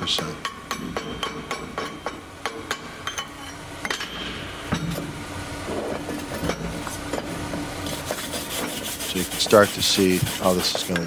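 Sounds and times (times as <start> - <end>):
rough scraping over steel: 7.8 - 11.0.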